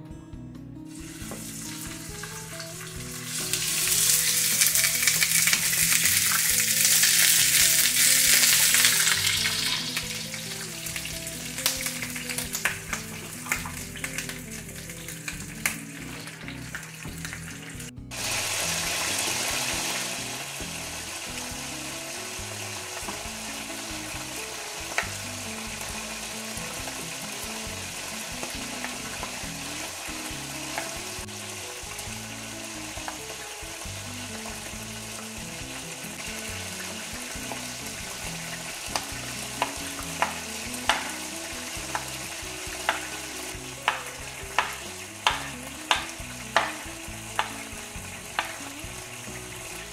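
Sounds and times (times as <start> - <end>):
chicken sizzling in a pan: 0.9 - 49.9
knife chopping on wooden board: 44.6 - 46.8.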